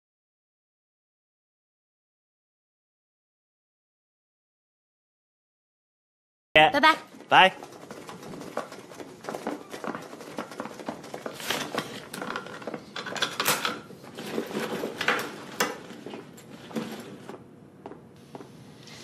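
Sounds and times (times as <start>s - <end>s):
chairs and desks clattering: 6.8s - 18.0s
furniture scraping: 7.0s - 17.5s.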